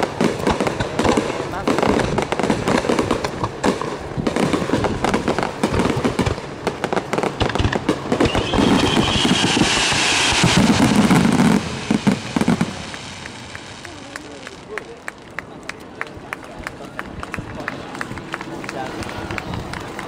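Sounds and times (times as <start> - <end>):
firework bangs: 0.0 - 16.4
firework crackling: 0.0 - 20.0
firework whistle: 8.1 - 14.8.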